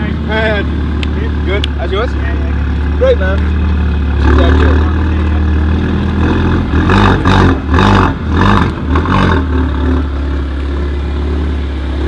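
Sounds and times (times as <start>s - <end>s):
car engine idling: 0.0s - 12.0s
car engine revving: 0.0s - 12.0s.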